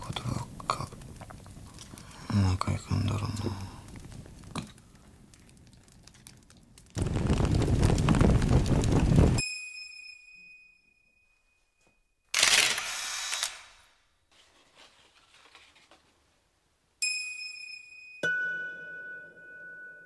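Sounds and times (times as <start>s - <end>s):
high bell-like chime: 9.4s - 12.2s, 17.0s - 20.0s
camera shutter and wind-on clatter: 12.3s - 13.7s.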